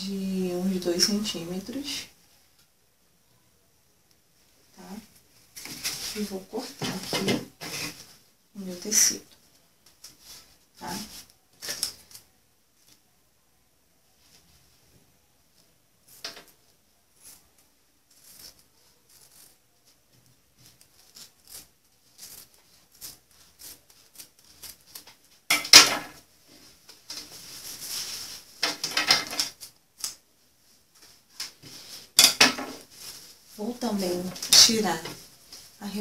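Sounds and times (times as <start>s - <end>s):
cloth rustling: 4.8s - 8.3s, 26.1s - 36.0s.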